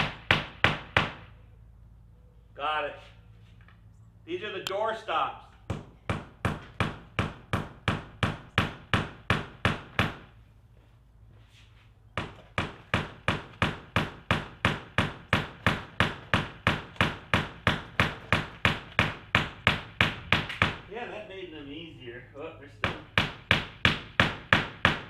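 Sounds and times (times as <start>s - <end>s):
hammer tapping: 12.2s - 20.8s.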